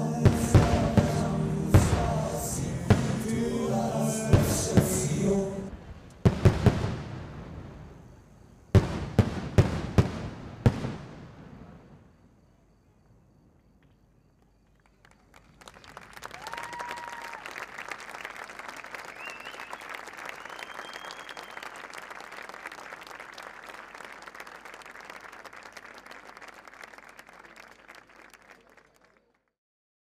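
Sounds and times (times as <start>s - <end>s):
crowd applauding: 14.8s - 29.5s
short whistles: 19.0s - 22.0s.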